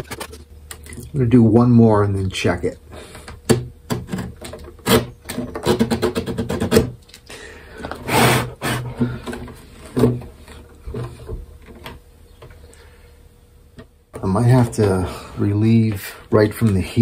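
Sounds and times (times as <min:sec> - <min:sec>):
sandpaper scraping wood: 0:08.0 - 0:08.9.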